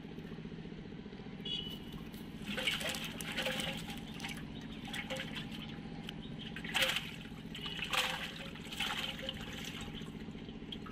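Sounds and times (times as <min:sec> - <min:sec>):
steady low hum: 0:00.0 - 0:10.9
water splashing and dripping: 0:02.4 - 0:05.8, 0:06.4 - 0:10.9.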